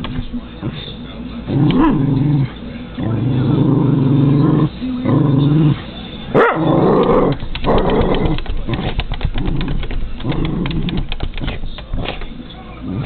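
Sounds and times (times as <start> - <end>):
dog growling: 1.5 - 11.1
dog barking: 6.4 - 6.7
claws clicking and scratching on window: 7.0 - 12.3.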